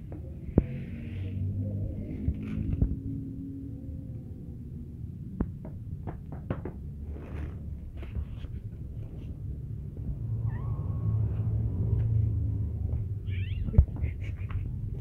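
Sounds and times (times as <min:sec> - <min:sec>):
low hum: 0:00.0 - 0:05.4, 0:07.3 - 0:15.0
cats meowing: 0:10.4 - 0:11.4, 0:13.2 - 0:13.9.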